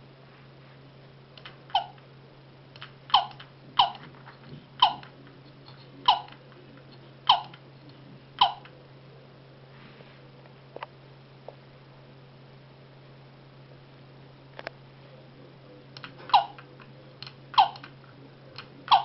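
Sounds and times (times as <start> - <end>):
toy squeaking falling in pitch: 1.7 - 2.0, 3.1 - 4.1, 4.8 - 5.1, 6.1 - 6.4, 7.3 - 7.6, 8.4 - 8.7, 16.3 - 16.6, 17.6 - 17.9.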